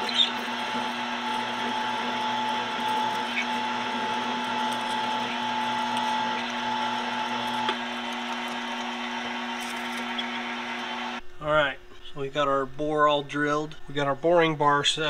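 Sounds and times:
drill bit cutting steel: 0.0s - 11.2s
metal lathe humming: 0.0s - 11.2s
spindle drive whine: 0.0s - 15.0s.

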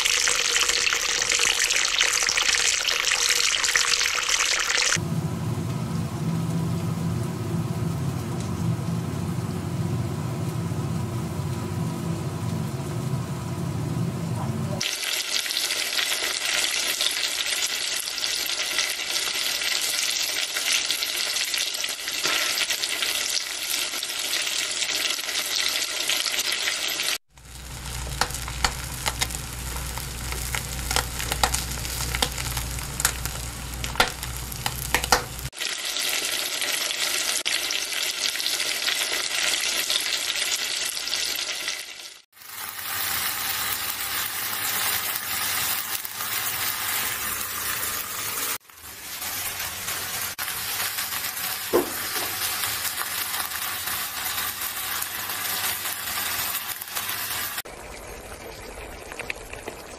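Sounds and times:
egg frying crackles and pops: 0.0s - 5.0s, 5.6s - 13.2s, 14.8s - 59.9s
food sizzling in hot oil: 0.0s - 13.8s, 14.8s - 59.9s
low hum: 27.4s - 35.5s.

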